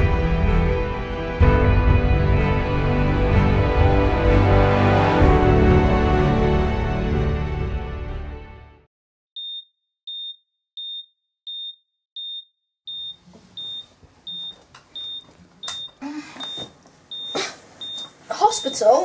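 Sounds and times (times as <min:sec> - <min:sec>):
heart monitor beeping: 0:09.4 - 0:18.8.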